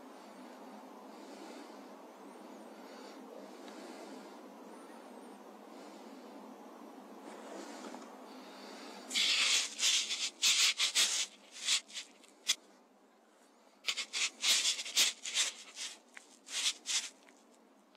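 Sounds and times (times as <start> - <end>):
scratchy handling scrapes: 9.1 - 12.6, 13.9 - 17.5.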